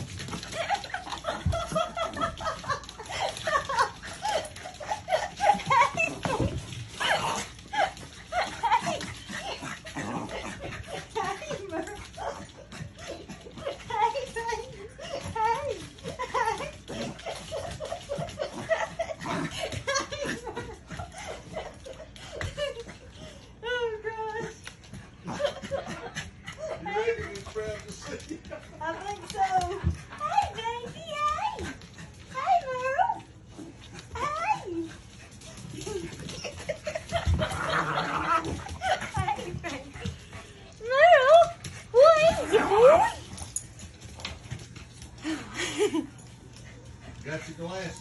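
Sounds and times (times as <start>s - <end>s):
woman laughing and giggling: 0.3s - 24.7s, 25.3s - 31.6s, 35.7s - 43.3s, 45.2s - 46.3s
woman laughing: 0.4s - 6.6s, 16.0s - 24.1s, 35.8s - 39.8s, 45.2s - 46.2s.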